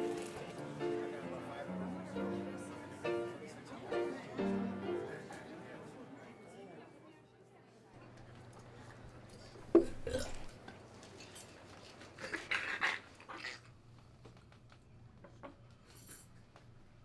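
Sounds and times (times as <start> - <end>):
man eating with animal-like noises: 10.0 - 14.5.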